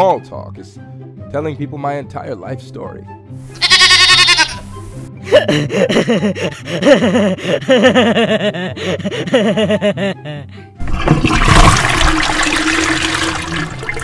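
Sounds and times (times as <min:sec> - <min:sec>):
background music: 0:00.0 - 0:14.0
sheep bleating: 0:03.5 - 0:04.7.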